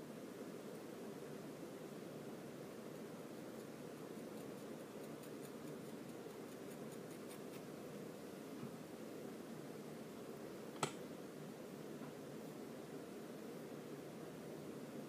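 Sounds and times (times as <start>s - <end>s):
low room hum: 0.0s - 15.0s
sharp click: 10.8s - 11.0s.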